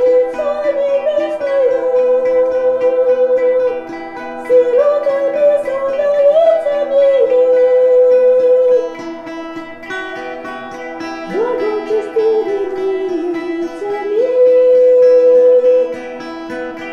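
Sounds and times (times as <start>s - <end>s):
plucked strings: 0.0s - 16.9s
woman singing folk song: 0.0s - 16.9s.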